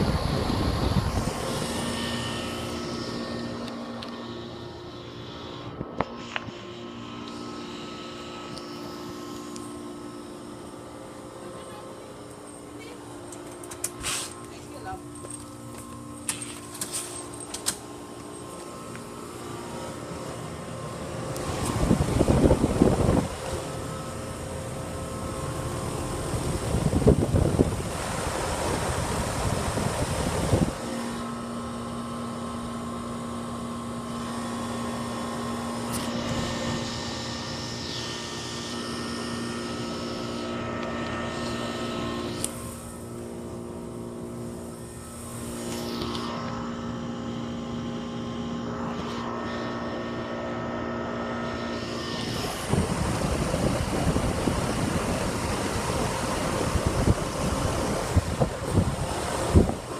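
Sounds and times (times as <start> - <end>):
wind buffeting microphone: 0.0 - 1.8, 21.4 - 23.7, 26.2 - 30.8, 52.2 - 59.9
heat pump humming: 0.0 - 59.9.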